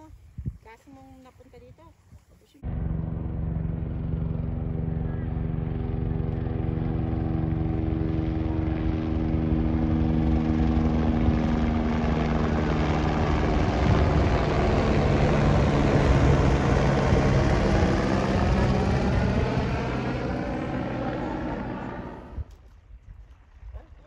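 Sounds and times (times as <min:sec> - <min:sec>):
road and wind noise: 0:00.0 - 0:23.4
car engine hum: 0:02.6 - 0:22.5.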